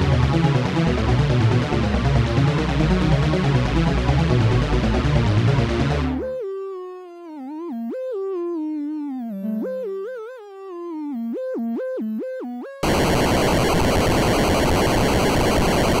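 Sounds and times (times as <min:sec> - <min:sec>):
harsh burst of noise: 0:12.8 - 0:16.0.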